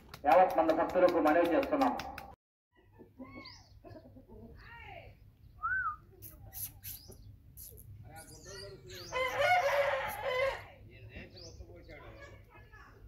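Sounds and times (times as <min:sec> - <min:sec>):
chickens clucking: 0:02.8 - 0:04.6.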